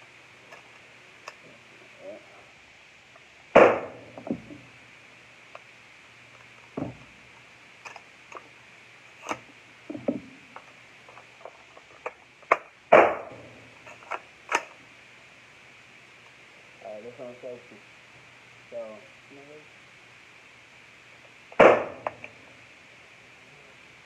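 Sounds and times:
gunshots with echo: 0:03.6 - 0:04.0, 0:21.6 - 0:22.0
small clicks and knocks: 0:06.3 - 0:08.5, 0:09.2 - 0:12.8.

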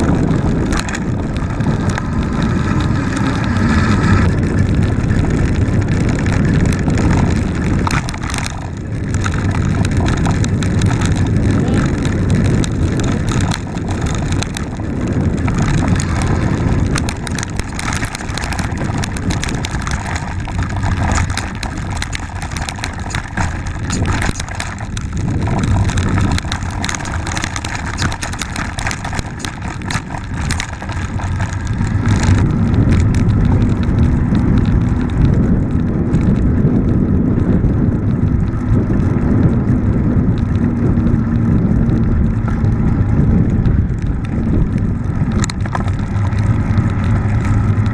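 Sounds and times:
bike rattling over bumps: 0:00.0 - 0:47.9
bike tyres rumbling on dirt: 0:00.0 - 0:47.9
wind buffeting microphone: 0:00.0 - 0:47.9.

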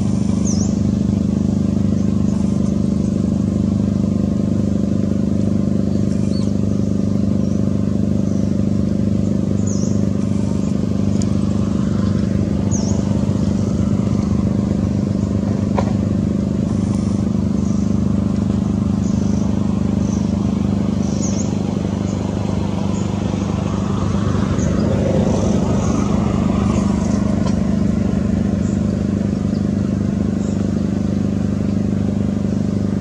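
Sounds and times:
engine humming: 0:00.0 - 0:33.0.

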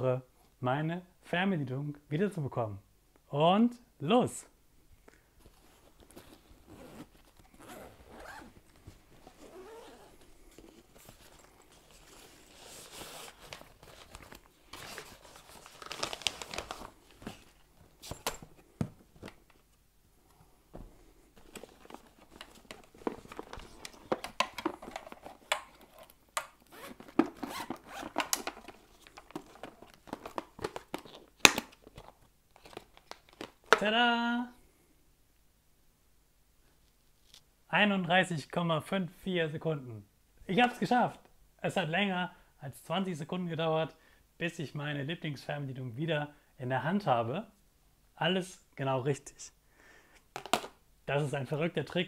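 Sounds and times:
fabric rustling: 0:05.4 - 0:19.5
zippers unzipping: 0:06.6 - 0:08.6, 0:09.2 - 0:11.0, 0:26.7 - 0:28.3
plastic boxes clicking open: 0:22.3 - 0:32.0.

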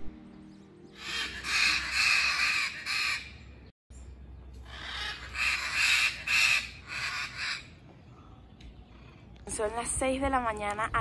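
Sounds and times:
macaws squawking: 0:01.0 - 0:03.4, 0:04.7 - 0:07.8.

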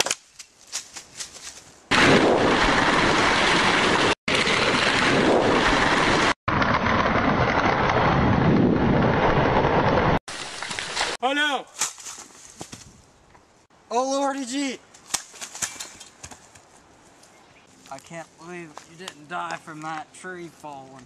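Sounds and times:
loud rushing rumble: 0:01.9 - 0:10.2.

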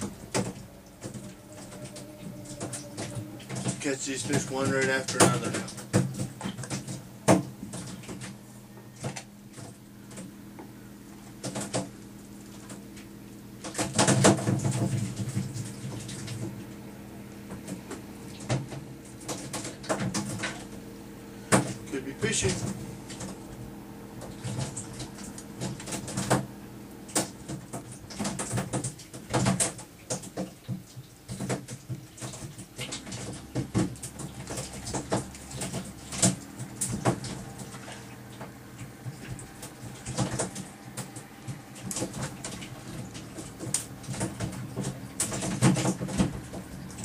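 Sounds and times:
steady low hum: 0:00.0 - 0:47.0.

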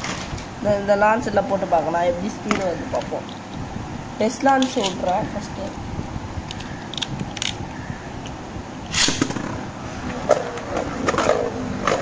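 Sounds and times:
launcher clicks: 0:08.9 - 0:09.6
launcher ripcord rip: 0:08.9 - 0:09.6.

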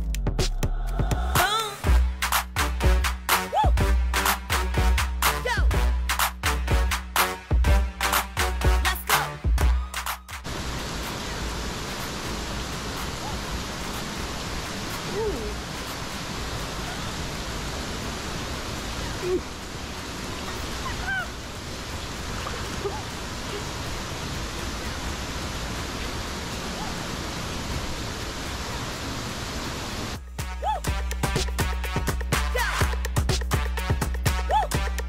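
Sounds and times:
waterfall rushing: 0:08.1 - 0:31.4.

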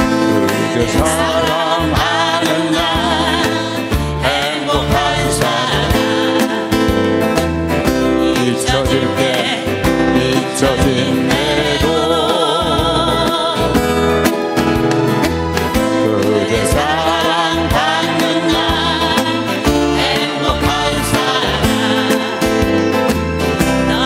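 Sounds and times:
steady bass beat: 0:00.0 - 0:09.2
people singing: 0:00.0 - 0:14.2, 0:15.7 - 0:24.0
strummed acoustic guitars: 0:00.0 - 0:24.0.

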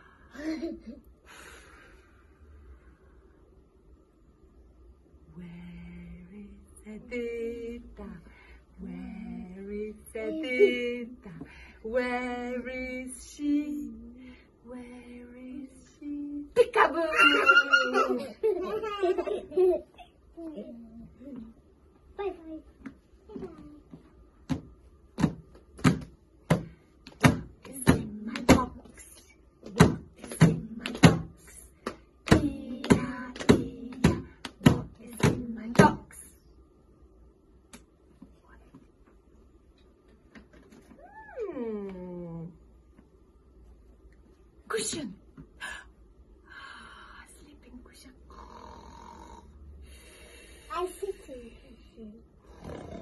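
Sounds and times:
hands clapping in rhythm: 0:29.7 - 0:36.0.

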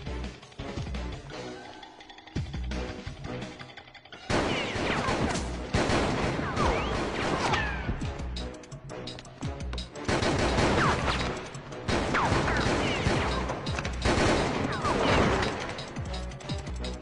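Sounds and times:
film music: 0:00.0 - 0:17.0
rapid gunfire bursts: 0:04.3 - 0:07.8, 0:10.0 - 0:16.6.

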